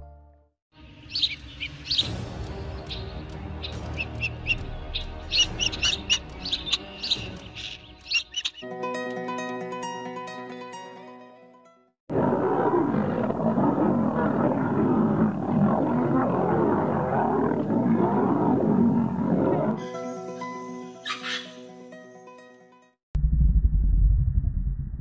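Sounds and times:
background music: 0.0s - 11.9s
lions growling and roaring: 12.1s - 19.8s.

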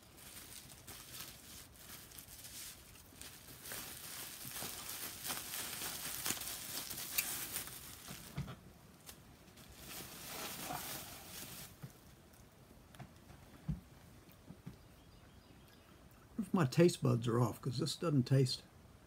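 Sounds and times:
packing material rustling: 0.0s - 12.4s.

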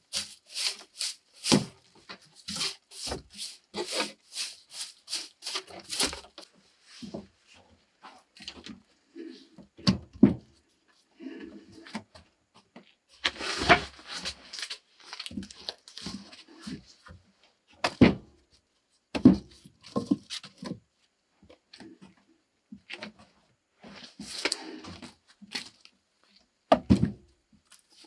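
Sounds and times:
logs scraping and clattering: 0.0s - 6.5s, 13.2s - 16.8s.

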